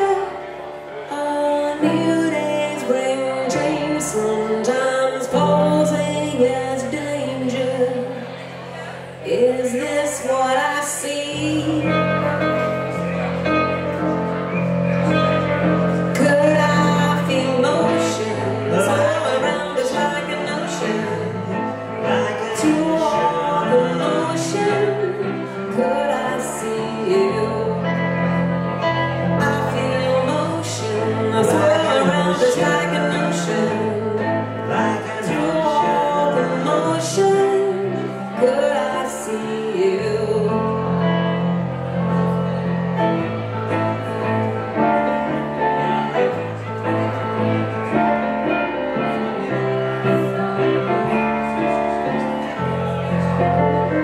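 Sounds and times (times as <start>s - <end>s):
live band playing: 11.7s - 26.2s.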